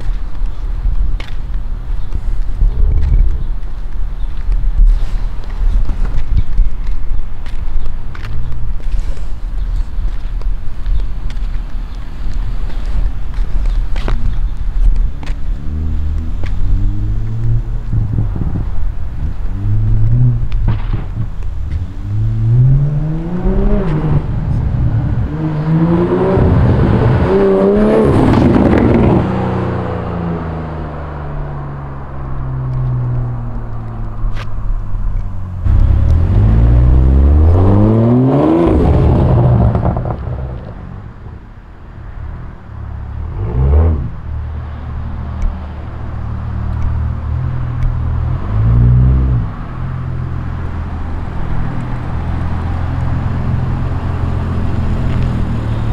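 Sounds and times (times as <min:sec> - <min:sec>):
loud car engine accelerating: 0:21.7 - 0:33.4, 0:35.6 - 0:41.4, 0:42.8 - 0:55.9.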